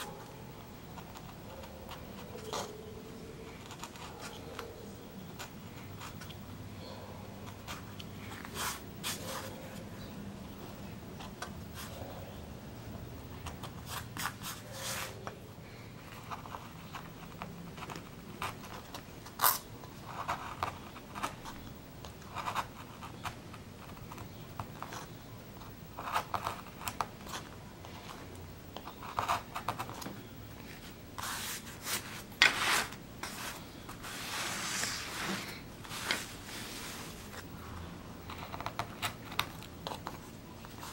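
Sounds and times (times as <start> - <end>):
gouge scraping wood: 31.2 - 37.4
rustling sweep: 31.2 - 37.4.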